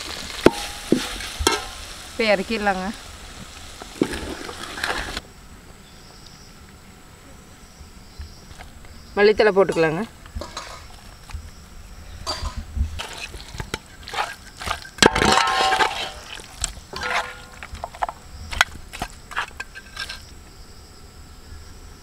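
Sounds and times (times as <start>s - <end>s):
spoon scraping metal pot: 12.3s - 18.1s, 19.0s - 20.3s.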